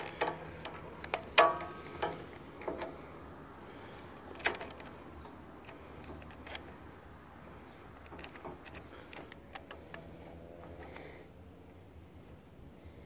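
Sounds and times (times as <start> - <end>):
sharp clicks and knocks on mower: 0.0 - 3.0, 4.2 - 6.8, 7.9 - 11.1.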